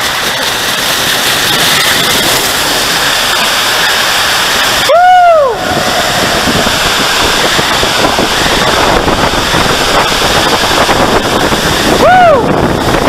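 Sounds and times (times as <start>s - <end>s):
water rushing through slide tube: 0.0s - 13.0s
person whooping: 4.9s - 6.7s, 12.0s - 12.6s.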